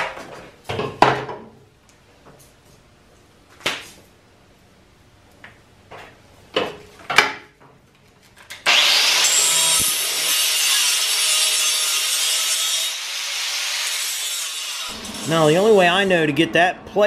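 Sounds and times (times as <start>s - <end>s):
angle grinder grinding steel: 8.7s - 16.3s.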